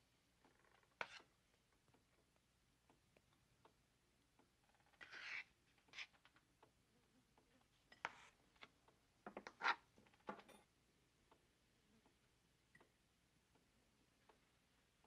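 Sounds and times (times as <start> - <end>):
spoon scraping a plate: 5.0 - 6.2, 7.9 - 8.4.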